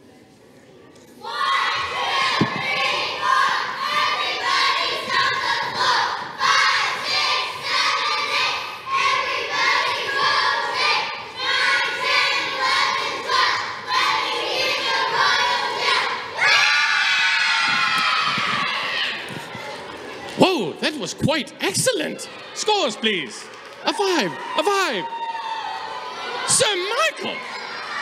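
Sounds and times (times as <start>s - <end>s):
children cheering in unison: 13.3s - 19.7s, 23.6s - 28.0s.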